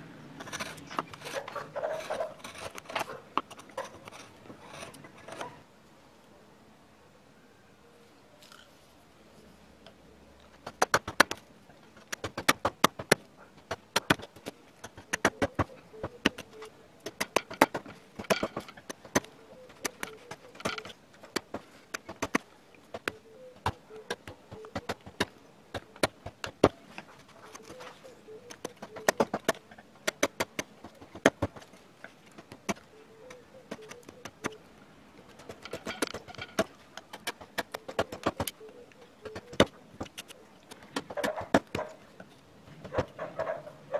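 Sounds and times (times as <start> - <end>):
carving gouge cutting wood: 0.4 - 5.6.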